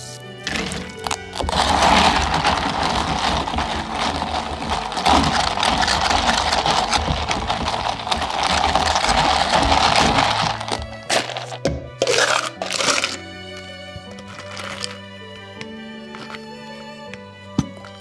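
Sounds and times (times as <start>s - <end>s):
ice rattling in plastic cup: 0.4s - 15.0s, 16.1s - 16.4s
fizz of sparkling drink: 0.5s - 13.2s.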